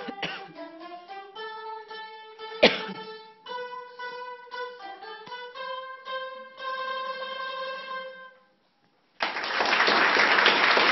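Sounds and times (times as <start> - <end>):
plucked string ensemble: 0.0 - 8.4
applause: 9.2 - 10.9.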